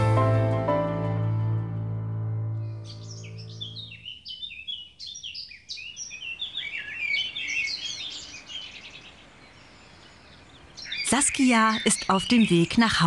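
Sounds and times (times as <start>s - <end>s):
songbirds chirping and singing: 2.6s - 13.0s.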